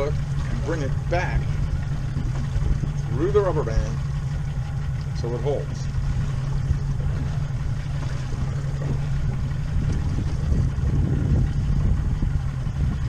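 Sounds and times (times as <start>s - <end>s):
boat engine humming: 0.0s - 13.0s
water rushing: 0.0s - 13.0s
wind rumble: 0.0s - 13.0s.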